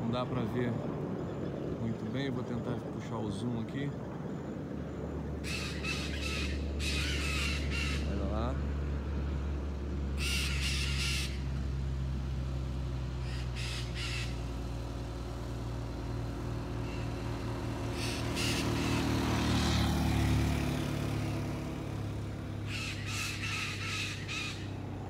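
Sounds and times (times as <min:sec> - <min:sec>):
vehicle engine running: 0:03.9 - 0:25.0
parrots squawking: 0:05.4 - 0:08.2, 0:10.2 - 0:11.4, 0:13.2 - 0:14.4, 0:16.8 - 0:17.2, 0:17.9 - 0:19.3, 0:22.6 - 0:24.8.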